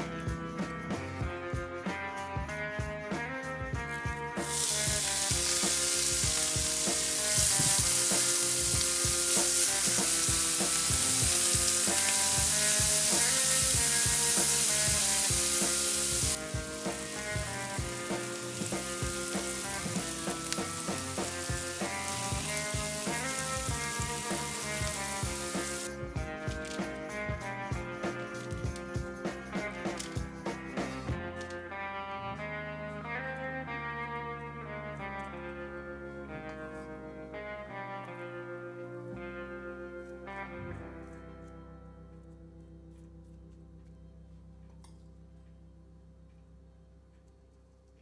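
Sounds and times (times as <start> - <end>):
herbs sizzling in hot oil: 4.4 - 26.0.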